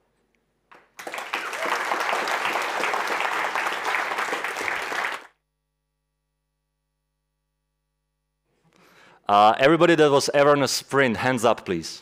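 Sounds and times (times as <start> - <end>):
audience applauding: 1.0 - 5.4.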